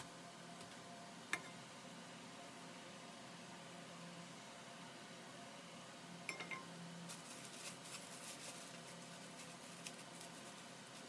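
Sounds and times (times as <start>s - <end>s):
wok clinking on metal grate: 6.3s - 6.7s.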